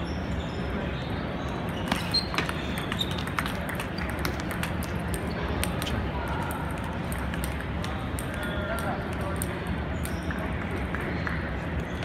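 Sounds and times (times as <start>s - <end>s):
large hall background noise: 0.0s - 12.0s.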